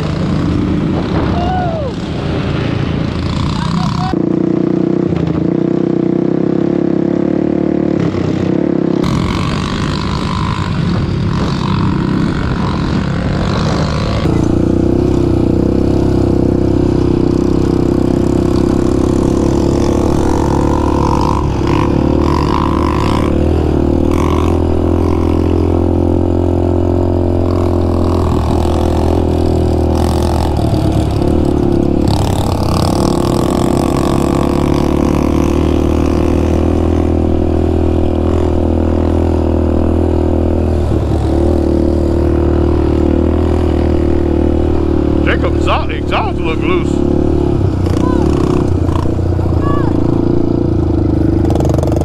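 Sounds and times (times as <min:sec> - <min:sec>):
quad bike engine running: 0:00.0 - 0:52.0.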